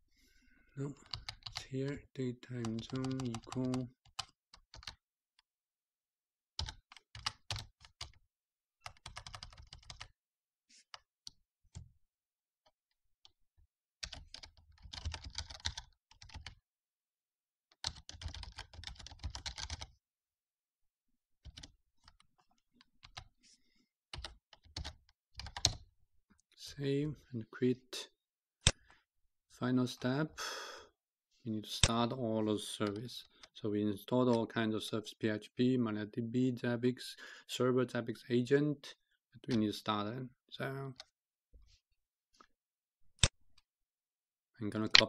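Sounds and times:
keyboard typing: 2.6 - 5.0, 6.6 - 8.2, 8.8 - 10.1, 14.0 - 16.6, 17.8 - 19.9, 24.1 - 25.8.

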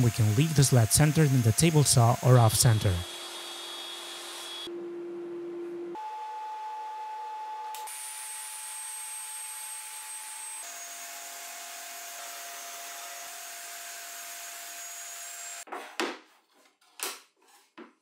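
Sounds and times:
table saw motor whine: 0.0 - 4.8.

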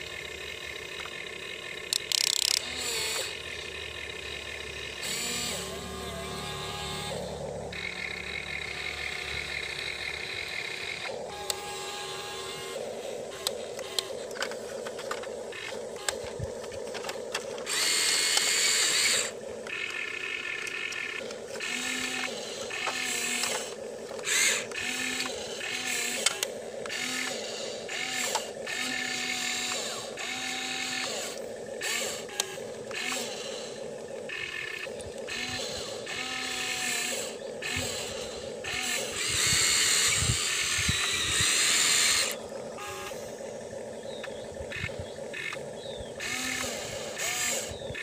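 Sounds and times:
electric motors whining: 0.0 - 48.0
scattered clicks: 1.8 - 3.3, 13.3 - 33.4.

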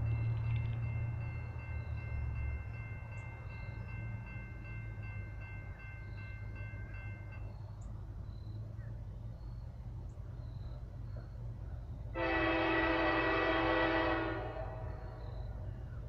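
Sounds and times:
distant diesel locomotives rumbling: 0.0 - 16.0.

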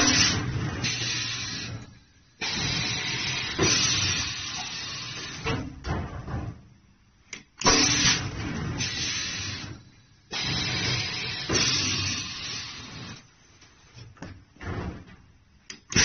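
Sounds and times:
machine hissing bursts: 0.0 - 5.8, 7.6 - 13.9, 15.7 - 16.0.

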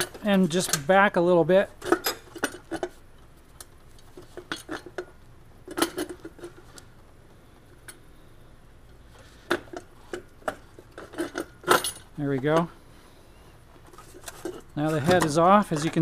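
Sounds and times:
light metallic clinks and knocks: 9.5 - 12.8, 13.9 - 16.0.

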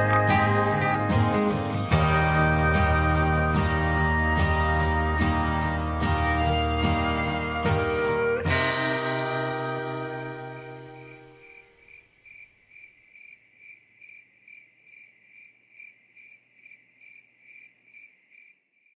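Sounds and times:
music chord: 0.0 - 11.8
cricket chirping: 9.6 - 19.0.

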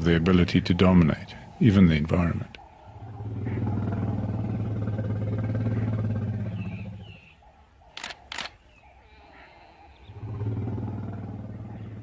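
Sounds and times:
elephant rumble: 2.9 - 7.3, 10.0 - 12.0
camera shutter clicks: 7.9 - 8.6.

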